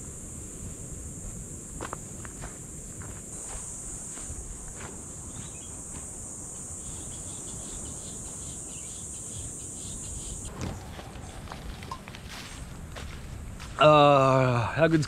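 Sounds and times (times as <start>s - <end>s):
insects droning: 0.0s - 15.0s
footsteps on dirt path: 0.6s - 7.0s, 10.5s - 14.4s.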